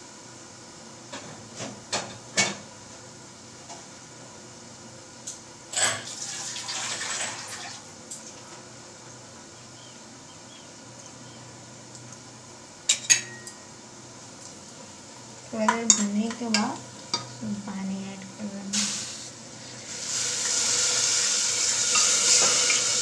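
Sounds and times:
water pouring into vessel: 6.1 - 7.8
metal kitchen utensils clinking: 12.9 - 13.6, 21.8 - 23.0.

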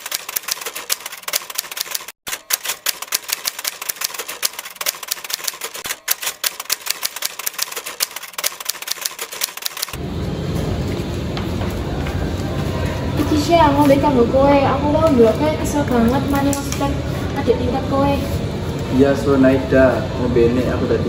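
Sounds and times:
typewriter keystroke clicks: 0.0 - 10.0.

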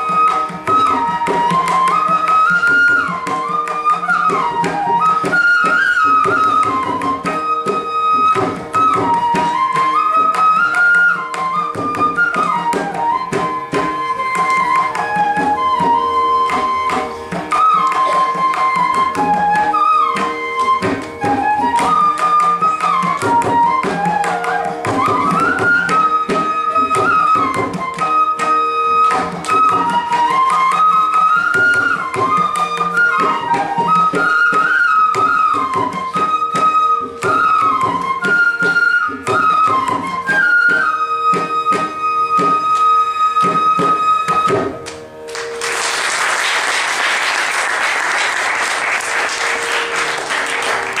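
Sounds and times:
bamboo flutes playing melody: 0.0 - 51.0
audience applause: 45.3 - 51.0.

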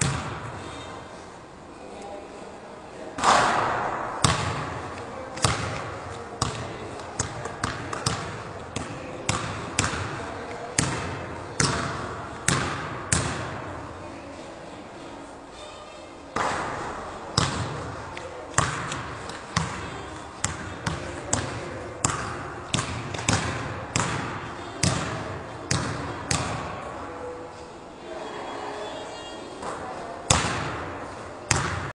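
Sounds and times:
basketball bouncing in echoing gym: 0.0 - 0.8, 3.2 - 13.9, 16.4 - 27.3, 29.6 - 31.9.

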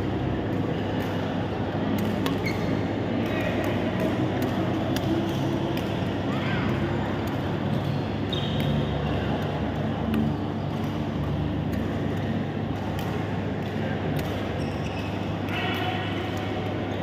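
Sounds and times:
shuttlecocks struck by racquets: 0.0 - 17.0.

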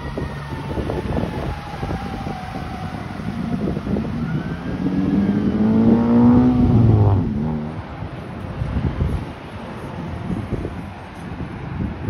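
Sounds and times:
street traffic noise: 0.0 - 12.0
vehicle engine accelerating: 3.1 - 8.2.

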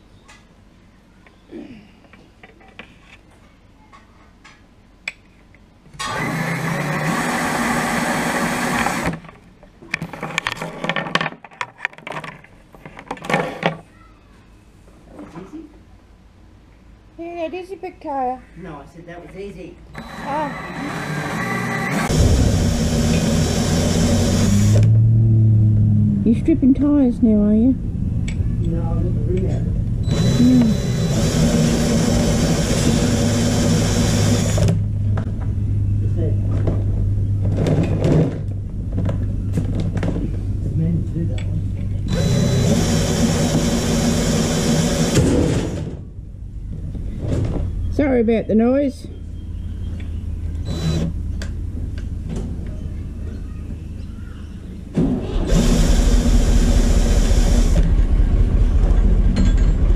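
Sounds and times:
cordless drill humming: 6.0 - 9.2, 20.0 - 24.8, 30.1 - 34.8, 42.1 - 45.2, 50.6 - 51.2, 55.5 - 57.8.

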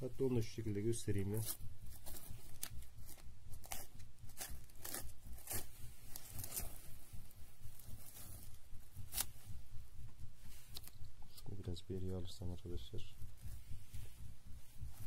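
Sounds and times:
cling film crinkling and tearing: 1.2 - 6.8.

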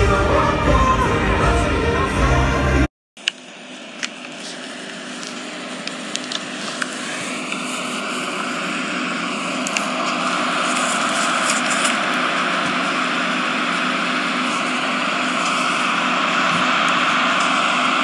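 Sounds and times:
concert music: 0.0 - 2.9.

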